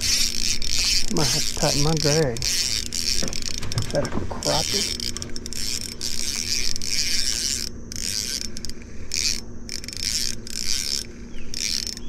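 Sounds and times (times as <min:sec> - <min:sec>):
fishing reel rasping: 0:00.0 - 0:12.0
steady low hum: 0:00.0 - 0:12.0.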